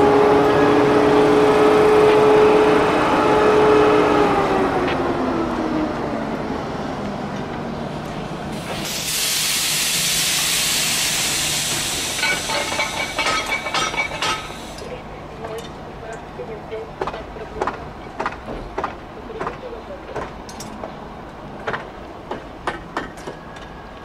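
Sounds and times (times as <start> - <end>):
electric locomotive whine: 0.0 - 16.9
air hiss: 8.6 - 13.2.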